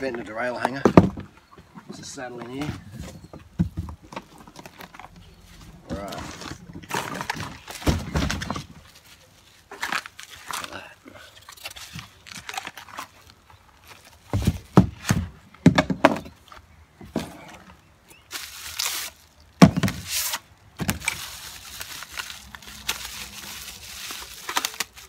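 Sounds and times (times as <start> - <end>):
knocks and thumps of parts: 0.6 - 4.8, 6.8 - 8.8, 14.3 - 16.4, 19.6 - 20.1
bubble wrap rustling and crinkling: 4.3 - 14.7, 18.1 - 25.0.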